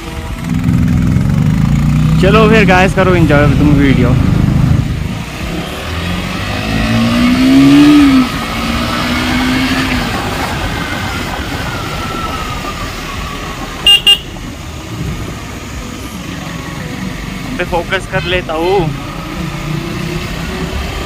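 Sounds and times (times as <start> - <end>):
motorcycle engine accelerating: 0.0 - 18.0
wind rushing over microphone: 3.5 - 13.8.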